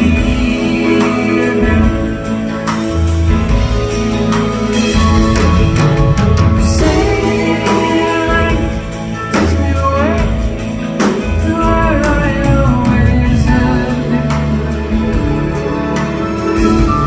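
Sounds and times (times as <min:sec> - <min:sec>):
bass: 0:00.0 - 0:17.0
drums: 0:00.0 - 0:17.0
lead electric guitar: 0:00.0 - 0:17.0.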